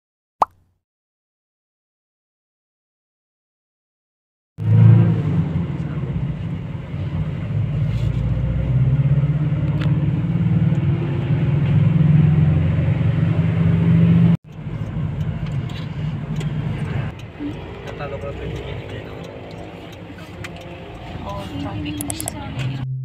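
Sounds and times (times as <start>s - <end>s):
car engine and road noise: 4.6s - 23.0s.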